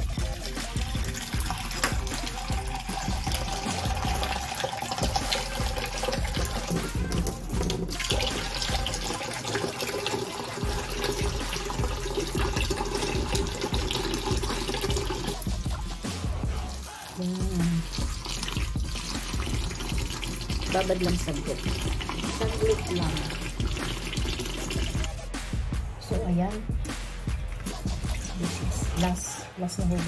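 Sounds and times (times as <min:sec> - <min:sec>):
tap water filling plastic bowl: 0:00.0 - 0:15.9, 0:17.4 - 0:25.1
background music: 0:00.0 - 0:30.0.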